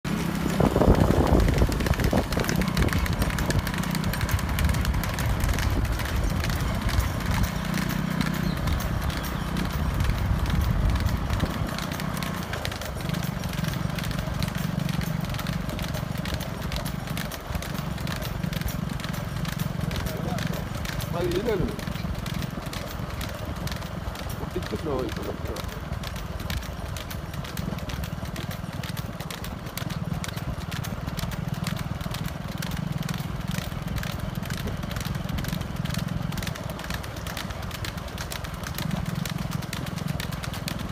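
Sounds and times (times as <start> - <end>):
hooves clattering on asphalt: 0.0 - 40.9
vehicle low rumble: 0.0 - 40.9.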